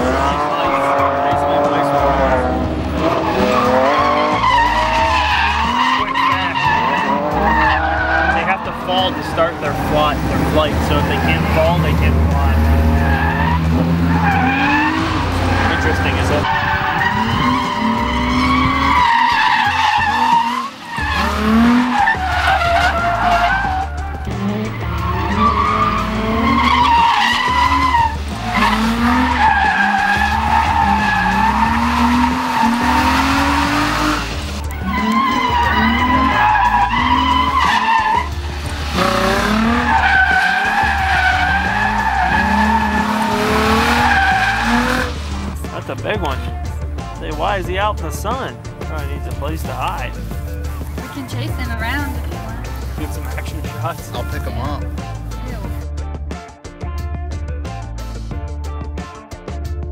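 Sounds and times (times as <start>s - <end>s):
music with bass beat: 0.0s - 5.8s, 6.4s - 59.9s
car engine revving hard: 0.0s - 46.4s
tyres squealing: 0.0s - 46.6s.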